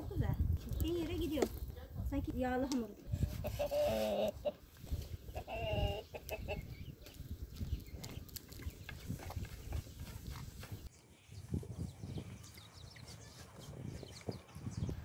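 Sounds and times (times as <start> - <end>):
hens clucking: 3.1 - 7.2.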